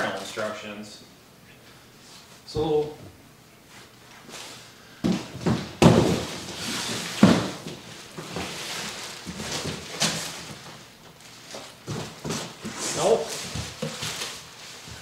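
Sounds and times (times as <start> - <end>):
cardboard rustling and scraping: 3.7 - 15.0
cardboard boxes thumping: 5.0 - 10.8, 11.5 - 15.0.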